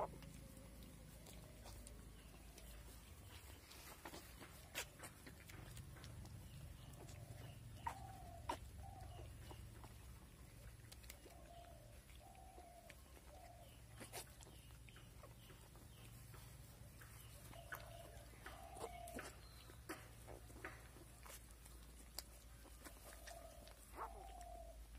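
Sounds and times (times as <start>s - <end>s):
piglets squeaking: 6.8s - 14.5s.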